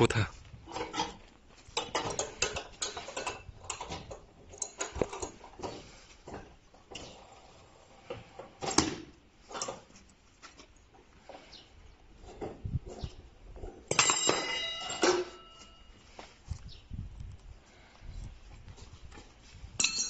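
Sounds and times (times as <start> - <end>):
metal bolts clicking and knocking: 1.8 - 5.7.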